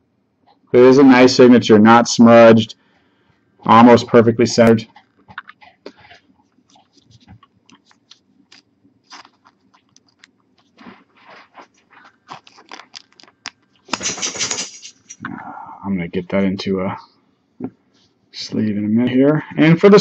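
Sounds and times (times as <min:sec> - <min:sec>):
plastic sleeve crinkling: 0:05.0 - 0:15.2.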